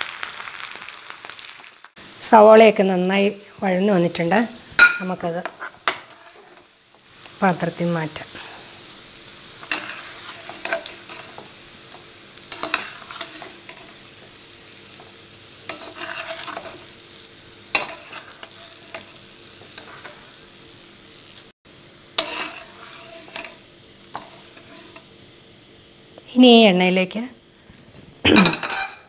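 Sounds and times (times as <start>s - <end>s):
oil sizzling in a frying pan: 0.0s - 29.0s
metal ladle scraping pan: 4.8s - 6.7s, 9.6s - 11.5s, 12.5s - 14.0s, 15.7s - 16.9s, 17.7s - 19.2s, 22.2s - 23.6s.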